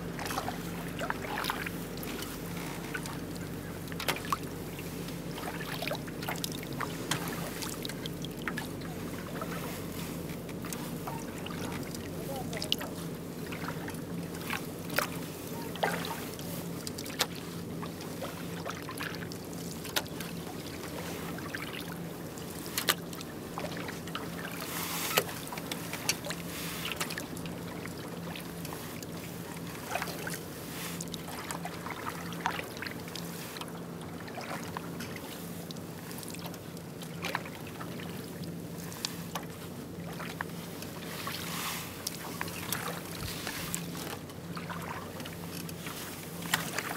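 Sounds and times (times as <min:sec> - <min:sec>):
kayak paddle dipping in water: 0:00.0 - 0:46.9
steady low hum: 0:00.0 - 0:46.9
water splashing and dripping: 0:31.0 - 0:36.6, 0:42.0 - 0:46.9.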